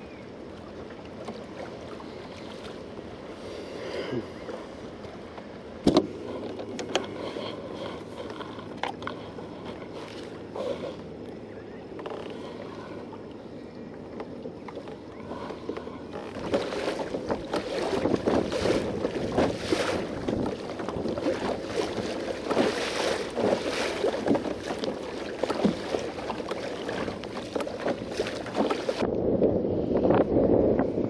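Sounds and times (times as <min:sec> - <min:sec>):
water slapping against kayak hull: 0:05.8 - 0:10.8, 0:14.1 - 0:29.0
wind buffeting microphone: 0:16.3 - 0:31.0.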